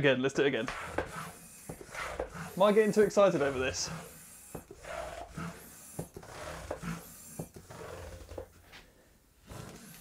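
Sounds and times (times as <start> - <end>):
hand air pump hissing: 0.6 - 8.4.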